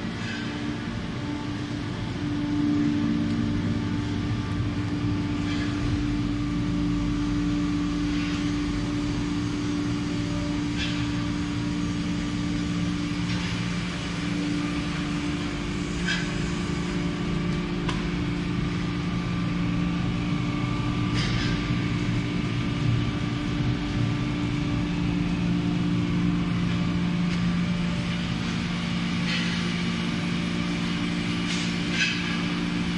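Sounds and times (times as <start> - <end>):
hydraulic power unit humming: 0.0 - 32.9.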